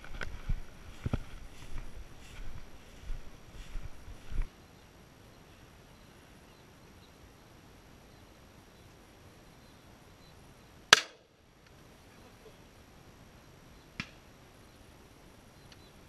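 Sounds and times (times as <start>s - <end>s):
faint outdoor background: 0.0s - 16.0s
shotgun shot: 10.9s - 11.2s.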